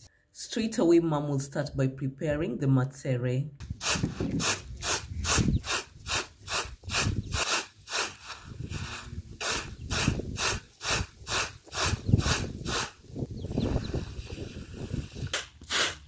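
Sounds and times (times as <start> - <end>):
grain swishing in basket: 6.1 - 11.9.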